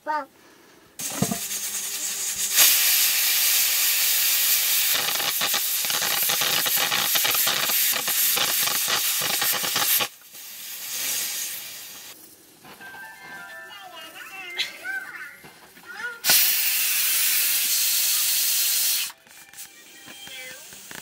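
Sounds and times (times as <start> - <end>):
faint hiss: 0.0 - 21.0
pressure cooker hissing and sputtering: 1.0 - 12.2, 16.2 - 21.0.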